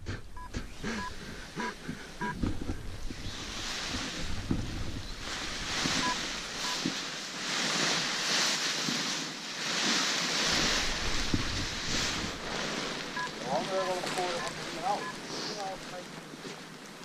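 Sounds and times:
wind buffeting microphone: 0:00.0 - 0:07.0, 0:10.4 - 0:14.0
nylon fabric rustling: 0:03.3 - 0:17.0
short electronic beeps: 0:06.0 - 0:06.8, 0:13.2 - 0:15.2.

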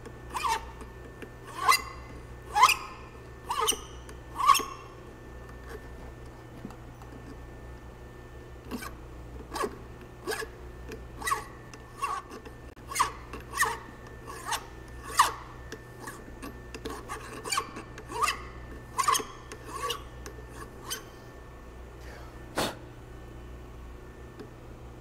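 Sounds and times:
hand file rasping on metal: 0:00.3 - 0:00.8, 0:01.5 - 0:04.8, 0:11.2 - 0:15.4, 0:16.8 - 0:21.1.

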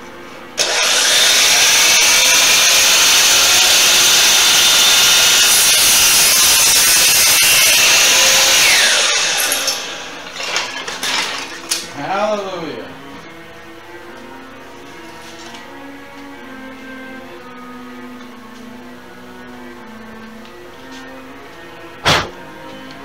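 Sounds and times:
miter saw cutting wood: 0:00.6 - 0:11.9.

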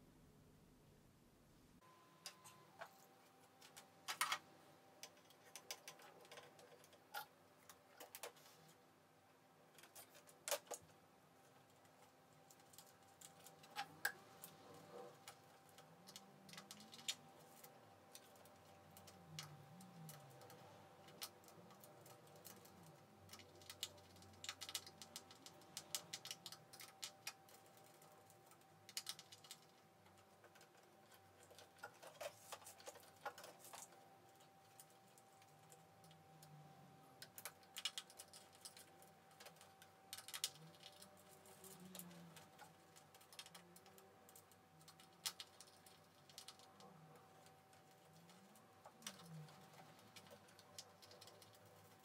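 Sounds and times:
faint steady hum: 0:00.0 - 0:52.0.

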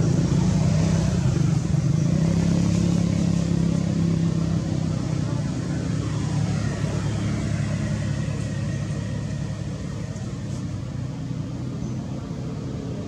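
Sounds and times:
vehicle engine droning: 0:00.0 - 0:13.0.

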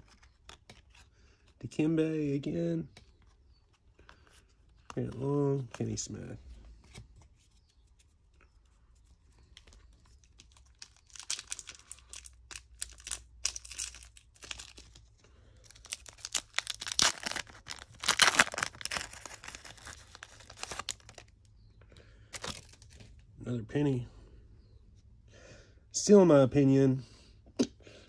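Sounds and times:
foil wrapper crinkling and tearing: 0:09.6 - 0:21.3, 0:22.3 - 0:23.1.

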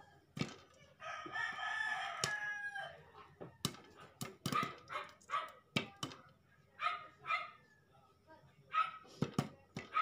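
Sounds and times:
rooster crowing: 0:01.0 - 0:03.1
dog barking: 0:04.5 - 0:05.6, 0:06.8 - 0:07.6, 0:08.7 - 0:09.1.

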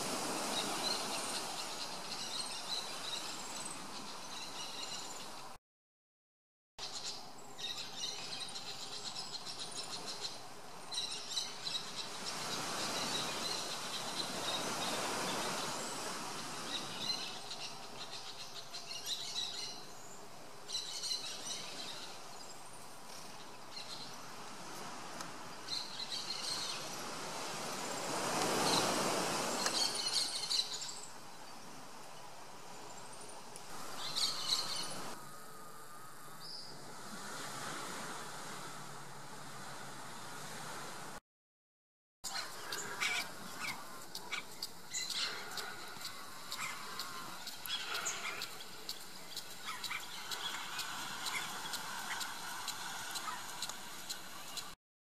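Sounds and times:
birds chirping: 0:42.2 - 0:54.8
broad rushing noise: 0:45.4 - 0:54.8.

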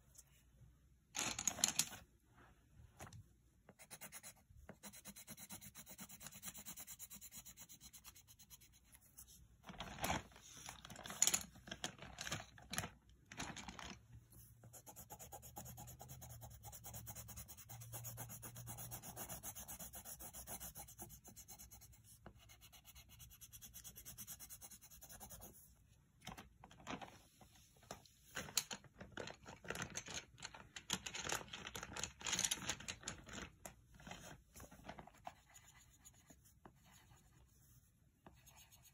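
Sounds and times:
pencil scratching on paper: 0:03.7 - 0:09.3, 0:14.6 - 0:25.7, 0:35.2 - 0:38.9.

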